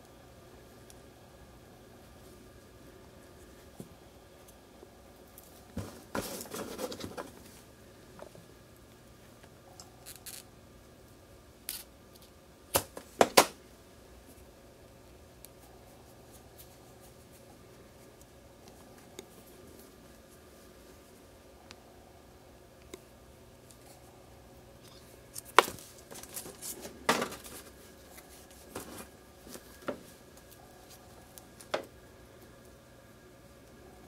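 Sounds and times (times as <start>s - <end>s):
crackly rustle: 1.9s - 10.5s, 14.2s - 21.4s, 22.8s - 32.8s.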